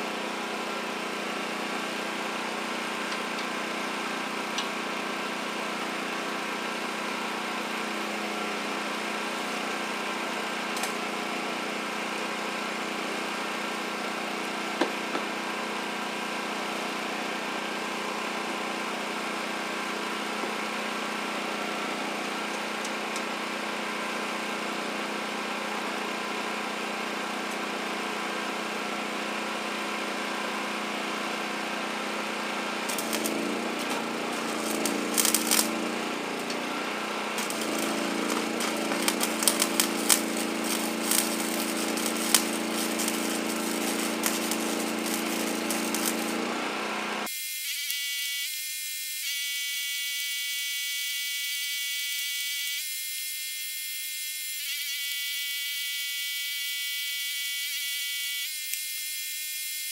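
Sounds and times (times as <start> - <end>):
small engine running: 0.0 - 47.3
welding arc crackling: 32.2 - 48.0.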